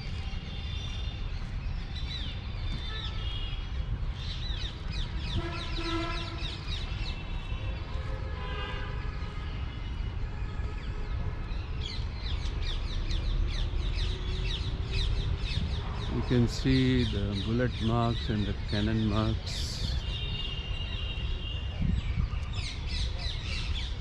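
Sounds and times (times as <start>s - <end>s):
birds chirping in chorus: 0.0s - 7.8s, 10.8s - 24.0s
harsh bird calls: 1.8s - 7.8s, 11.9s - 24.0s.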